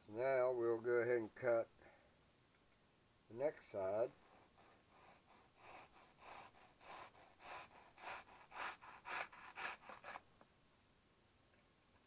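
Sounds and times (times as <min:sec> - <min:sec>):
knife sawing through sheet material: 0:04.1 - 0:10.2.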